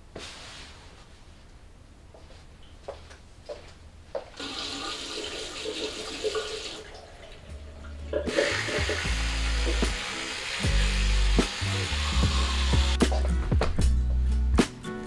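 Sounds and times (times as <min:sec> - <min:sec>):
tap water running into sink: 0:04.4 - 0:13.0
soft music with low notes: 0:06.9 - 0:15.0.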